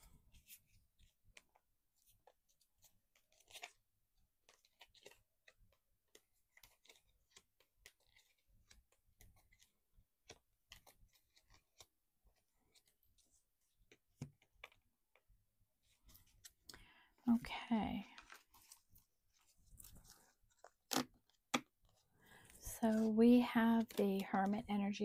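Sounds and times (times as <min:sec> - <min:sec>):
cards rustling and clicking: 0:00.3 - 0:16.8, 0:18.0 - 0:23.1.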